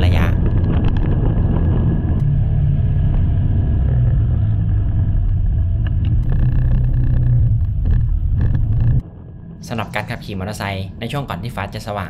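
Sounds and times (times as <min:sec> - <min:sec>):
motorcycle engine rumble: 0:00.0 - 0:09.6
road noise: 0:00.0 - 0:09.7.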